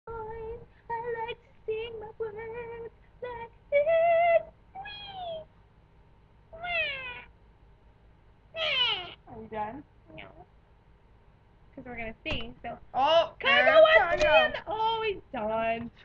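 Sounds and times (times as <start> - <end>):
woman singing without words: 0.1 - 4.5.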